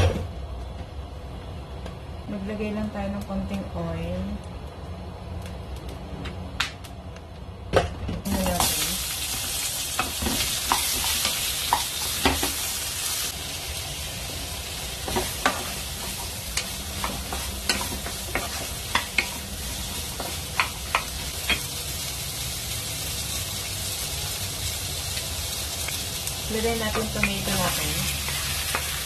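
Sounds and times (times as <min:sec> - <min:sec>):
onions sizzling in hot oil: 0:08.2 - 0:29.0
spatula tapping a pan: 0:10.0 - 0:12.6, 0:15.0 - 0:19.5, 0:20.1 - 0:21.7, 0:26.9 - 0:27.7.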